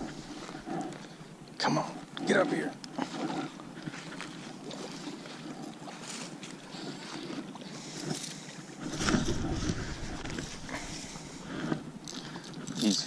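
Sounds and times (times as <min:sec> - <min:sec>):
low rumble on microphone: 0:03.0 - 0:12.5.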